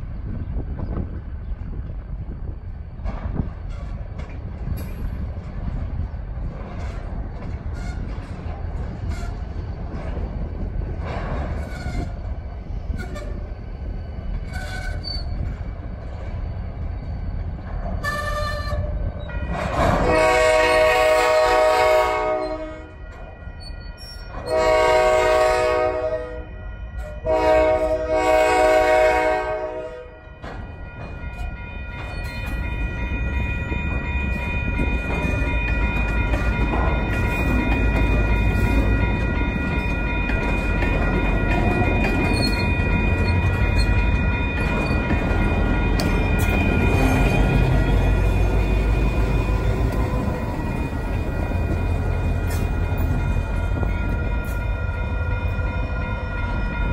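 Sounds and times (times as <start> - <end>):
freight train rumbling: 0.0 - 56.9
locomotive air horn blasts: 19.9 - 23.0, 24.4 - 30.2.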